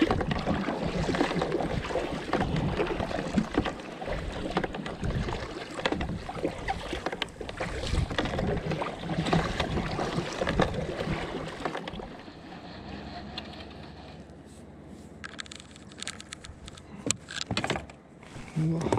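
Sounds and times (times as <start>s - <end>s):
paddle strokes splashing water: 0.0s - 14.4s
wind buffeting microphone: 5.0s - 11.4s.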